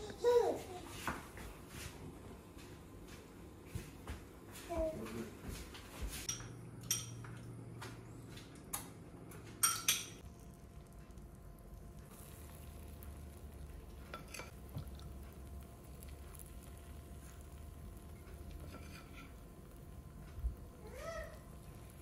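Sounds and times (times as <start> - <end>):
metal spoon clinking against bowl: 9.6 - 10.2.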